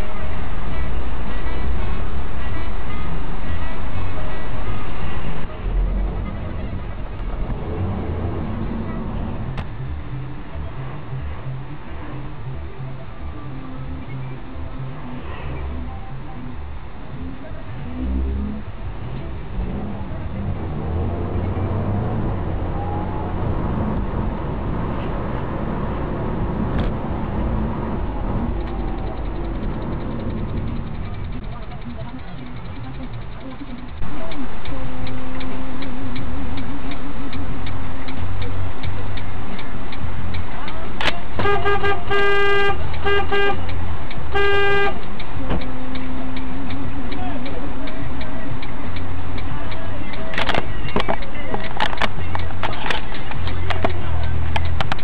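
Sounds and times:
car engine and road noise: 0.0s - 55.0s
car horn honking: 41.3s - 43.7s, 44.3s - 45.0s.

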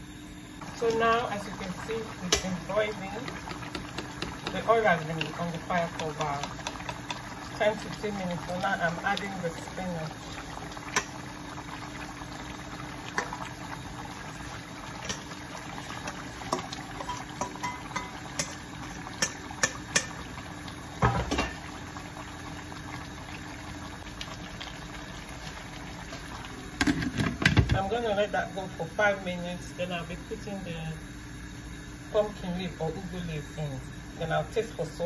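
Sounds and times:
soup bubbling in a pot: 0.0s - 35.0s
clicks and knocks of stirring: 3.2s - 7.4s.

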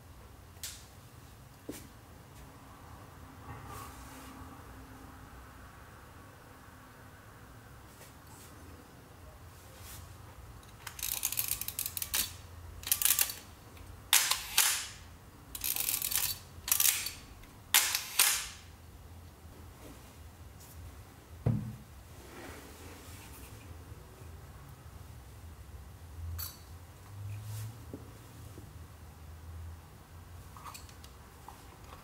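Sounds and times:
camera film-advance lever winding: 10.7s - 13.4s, 14.1s - 14.9s, 15.6s - 17.2s, 17.8s - 18.5s
camera shutter clicks: 14.1s - 15.0s, 17.8s - 18.6s
dull handling knock: 21.4s - 21.8s.

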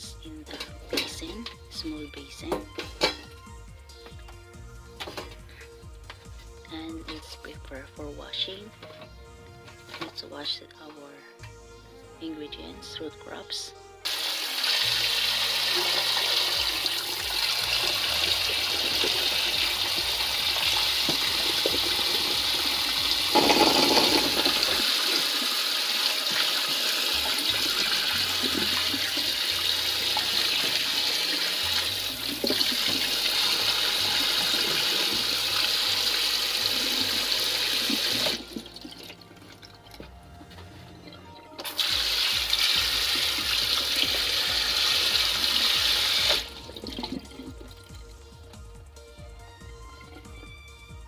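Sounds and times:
tap water spraying into sink: 14.1s - 39.2s, 41.6s - 47.8s.

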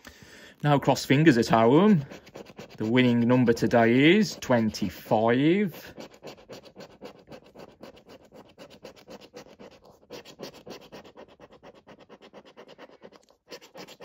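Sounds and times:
coin scratching a scratchcard: 1.2s - 14.0s.

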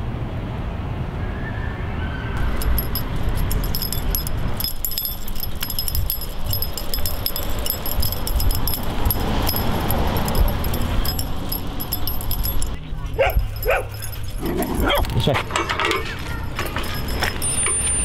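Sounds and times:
steady low rumble: 2.4s - 15.5s
dog tags jingling: 2.4s - 18.0s.

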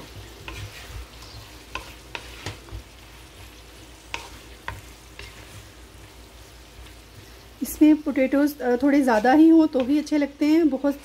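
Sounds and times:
spatula tapping pan: 0.0s - 5.8s, 9.0s - 10.2s
faint sizzle: 0.0s - 11.0s
spatula stirring food in a wok: 0.0s - 11.0s.

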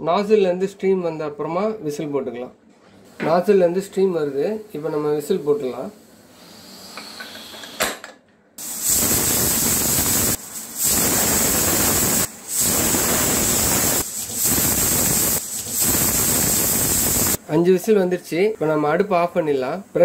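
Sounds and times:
pressure cooker steam whistle: 8.6s - 17.4s.

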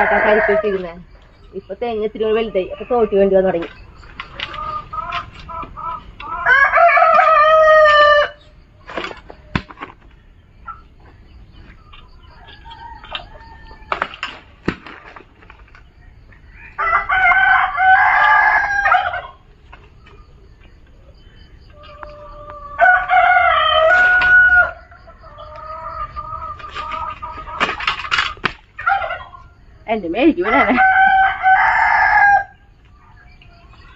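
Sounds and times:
rooster crowing: 0.0s - 1.1s, 4.4s - 8.6s, 12.1s - 14.3s, 16.2s - 19.4s, 21.4s - 27.4s, 30.4s - 33.3s.

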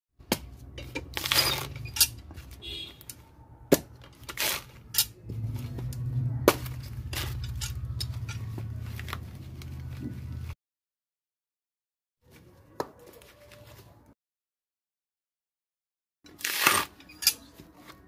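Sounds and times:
coconut husk cracking and tearing: 16.3s - 17.0s.

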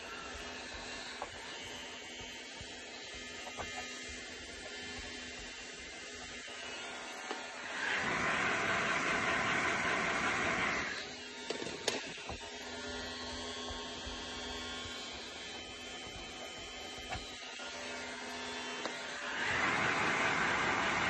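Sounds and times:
heat gun blowing: 6.2s - 16.4s, 18.8s - 21.0s.

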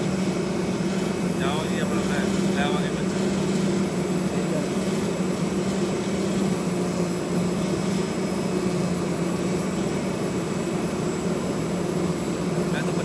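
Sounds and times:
cutting machine low drone: 0.0s - 13.0s.

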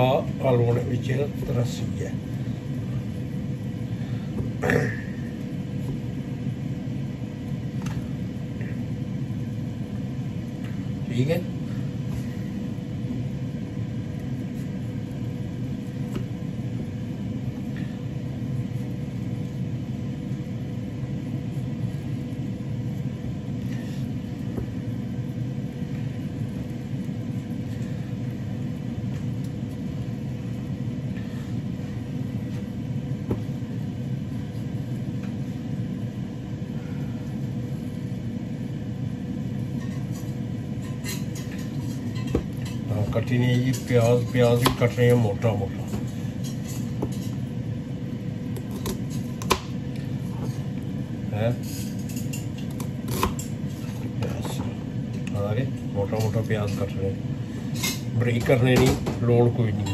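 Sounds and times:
kitchen appliance humming: 0.0s - 59.9s.

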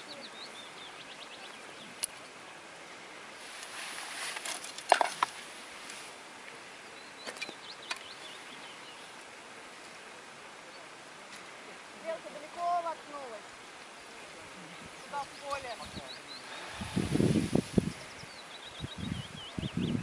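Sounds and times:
clothing rustle: 3.4s - 6.2s.

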